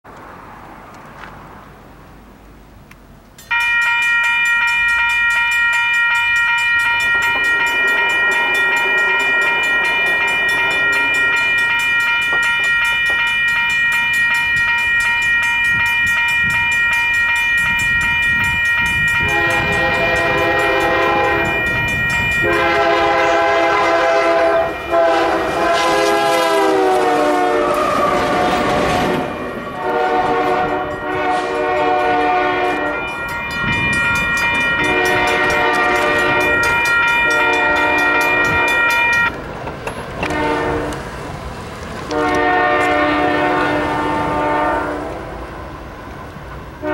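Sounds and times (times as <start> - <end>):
train rumble: 0.1 - 46.9
high-pitched ringing tone: 3.4 - 23.3, 32.7 - 39.3
train air horn blasts: 19.2 - 21.8, 22.4 - 33.2, 34.7 - 39.2, 40.2 - 41.0, 42.1 - 45.5.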